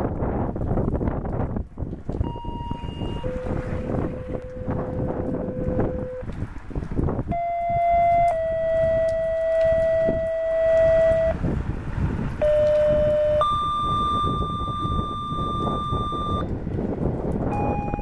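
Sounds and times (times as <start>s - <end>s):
wind rumble on microphone: 0.0s - 18.0s
electronic paging tones: 2.2s - 6.2s, 7.3s - 11.4s, 12.4s - 16.5s, 17.5s - 18.0s.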